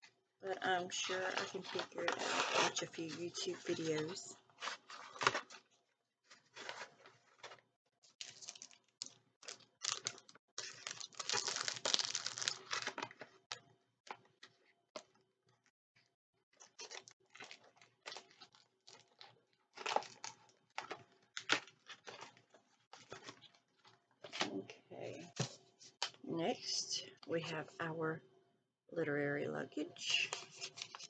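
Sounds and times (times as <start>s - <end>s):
packaging rustling and crinkling: 1.0s - 15.1s, 16.6s - 24.5s.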